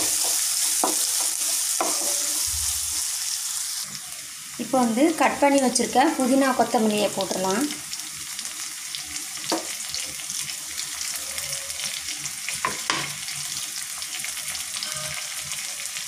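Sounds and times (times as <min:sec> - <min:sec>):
spatula scraping a pan: 0:00.0 - 0:02.8
onions sizzling in hot oil: 0:00.0 - 0:16.0.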